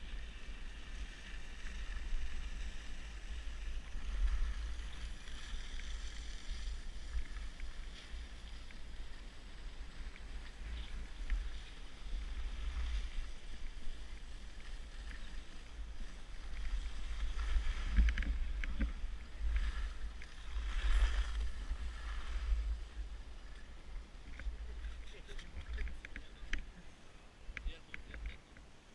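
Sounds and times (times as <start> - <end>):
skis scraping on snow: 0.0 - 28.2.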